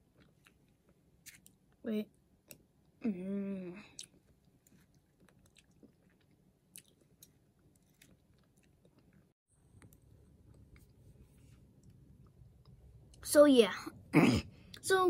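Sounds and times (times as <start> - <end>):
faint chewing: 0.1 - 1.8, 3.8 - 13.2.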